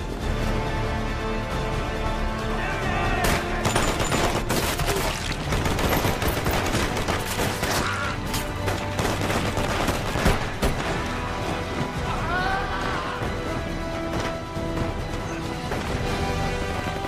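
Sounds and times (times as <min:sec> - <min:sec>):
massed rifle fire: 0:03.7 - 0:07.8.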